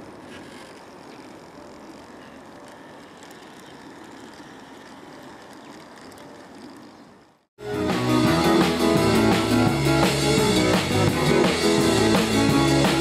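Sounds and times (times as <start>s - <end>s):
wheels on rails: 0.0s - 7.5s
model locomotive drive humming: 0.0s - 13.0s.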